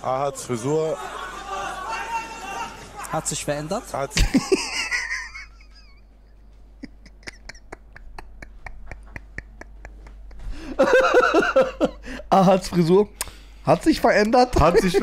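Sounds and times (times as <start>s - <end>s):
men laughing: 0.6s - 3.2s, 3.8s - 12.3s, 14.5s - 15.0s.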